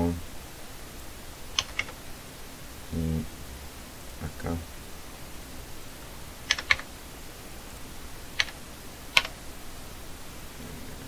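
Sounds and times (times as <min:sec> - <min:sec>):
faint steady hiss: 0:00.0 - 0:11.0
computer keys clicking: 0:01.6 - 0:02.0, 0:06.5 - 0:06.9, 0:08.4 - 0:09.4.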